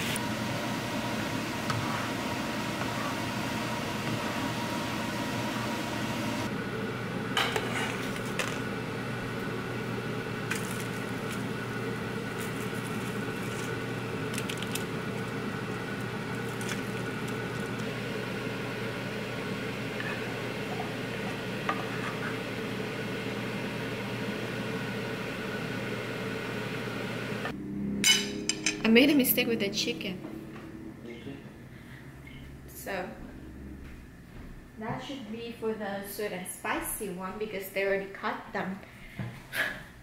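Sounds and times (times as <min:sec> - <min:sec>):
steady kitchen hum and hiss: 0:00.0 - 0:40.0.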